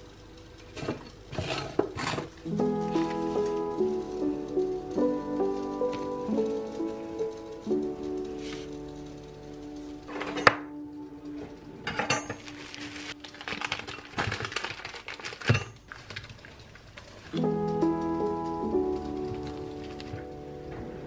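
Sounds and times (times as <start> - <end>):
background music: 0.0 - 15.4, 17.3 - 21.0
utensils clicking and scraping: 0.4 - 10.7
food packaging rustling: 12.0 - 17.4.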